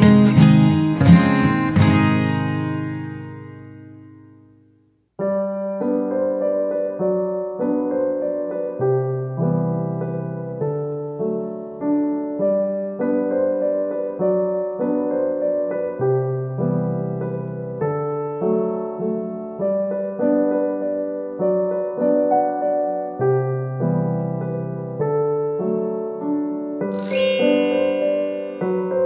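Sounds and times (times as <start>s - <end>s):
gentle electric piano tune: 5.2s - 29.0s.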